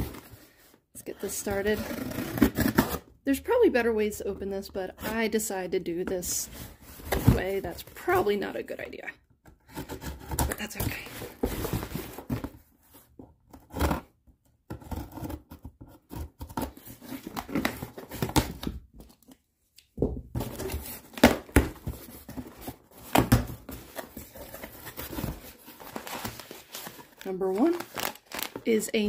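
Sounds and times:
tape tearing: 23.9 - 28.7.

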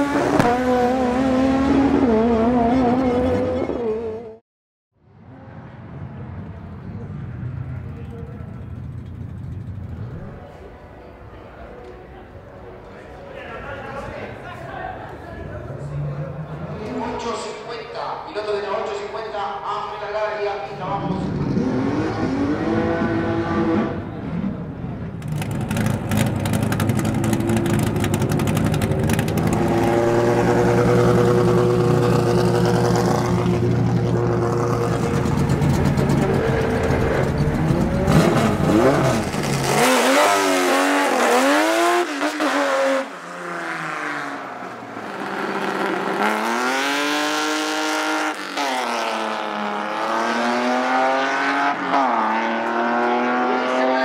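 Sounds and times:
race car engines revving: 0.0 - 4.4, 19.6 - 54.0.

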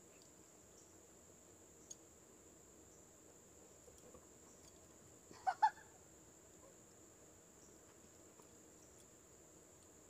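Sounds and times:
tiny ticks: 0.0 - 0.9, 1.8 - 2.1, 7.6 - 10.0.

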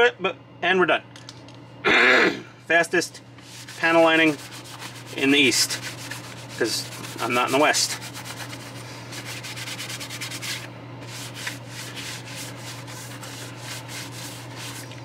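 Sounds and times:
paper towel rubbing on plastic: 3.4 - 15.0.

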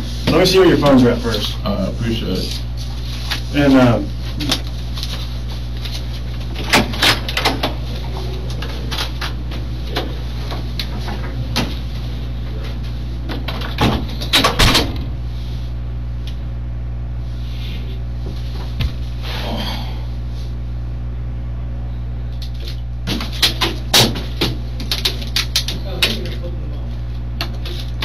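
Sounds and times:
low electrical hum: 0.0 - 28.0
door shutting with clicks: 13.4 - 15.1.

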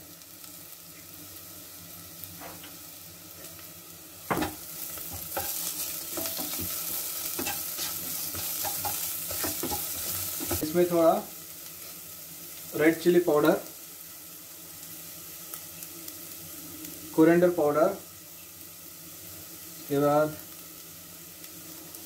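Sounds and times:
onions sizzling in a pan: 0.0 - 22.0
wooden spatula scraping a pan: 4.4 - 10.7.

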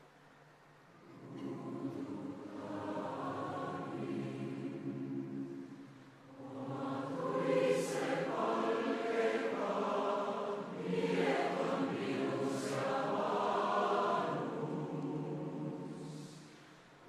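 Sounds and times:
choir singing: 1.0 - 16.8.

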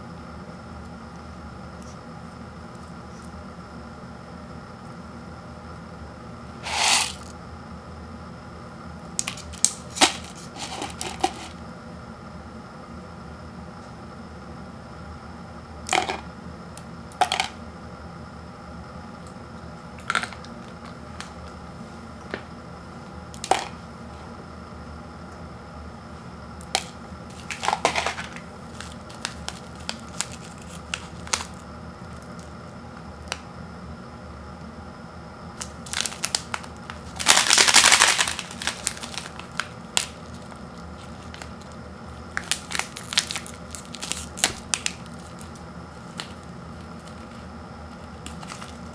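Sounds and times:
foil packet crinkling: 9.2 - 11.5, 27.3 - 32.5, 35.6 - 48.9
dry noodles cracking: 26.8 - 32.5, 35.6 - 48.9.

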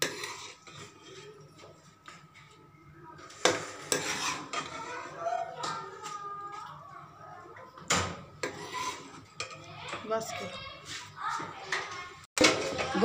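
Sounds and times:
ladle scraping metal pot: 0.0 - 1.7, 3.2 - 6.2, 8.3 - 10.1.

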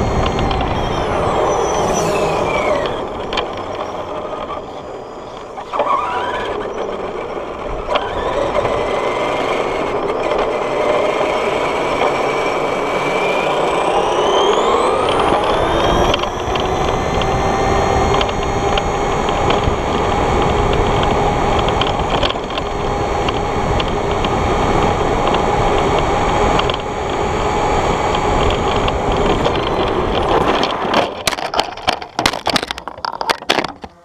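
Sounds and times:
toy truck motor whine: 0.0 - 32.7
toy truck tumbling clatter: 28.4 - 34.0.

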